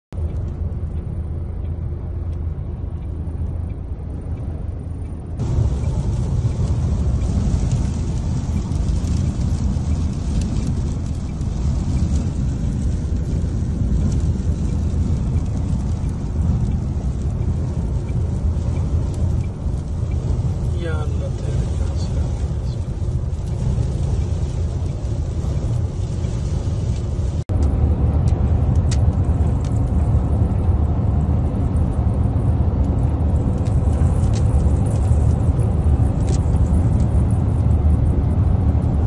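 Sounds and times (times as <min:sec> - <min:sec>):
sandstorm wind rumble: 0:00.2 - 0:39.0.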